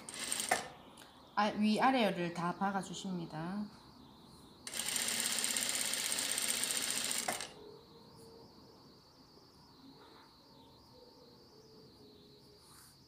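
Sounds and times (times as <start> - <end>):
sewing machine running: 0.0 - 0.7, 4.7 - 7.6
faint high whine: 0.0 - 13.0.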